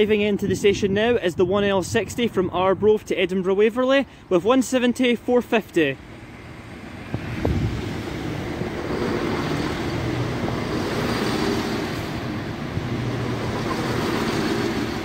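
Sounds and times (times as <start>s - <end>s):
diesel train rumbling past: 5.9s - 15.0s.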